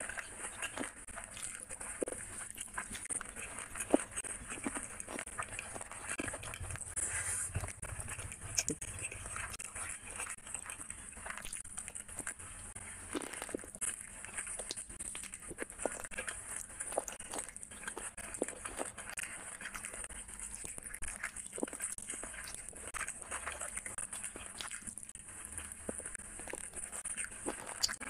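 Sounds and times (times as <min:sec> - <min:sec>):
fingers squishing rice: 0:00.0 - 0:28.0
man chewing and smacking: 0:00.0 - 0:28.0.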